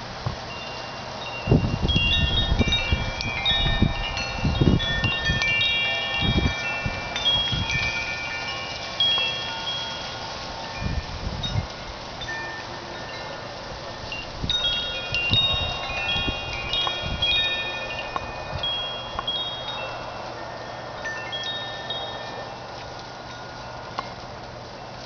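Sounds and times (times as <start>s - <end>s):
wind chimes ringing: 0.0s - 25.0s
wind buffeting microphone: 1.4s - 24.7s.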